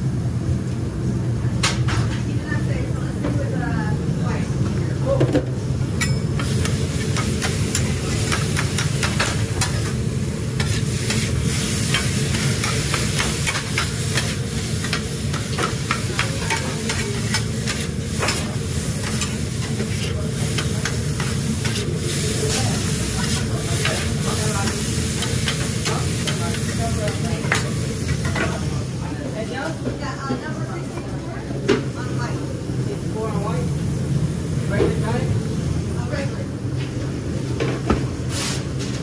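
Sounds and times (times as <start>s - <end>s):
constant low hum: 0.0s - 38.2s
food sizzling: 5.8s - 29.2s.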